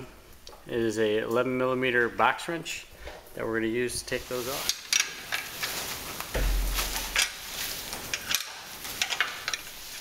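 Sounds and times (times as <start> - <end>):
low rumble: 6.4 - 7.2.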